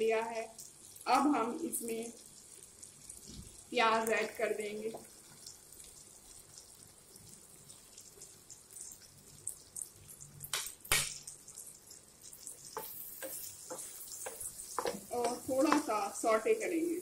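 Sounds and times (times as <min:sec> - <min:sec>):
onions sizzling in a frying pan: 0:00.0 - 0:17.0
stirring scrapes: 0:12.4 - 0:15.8.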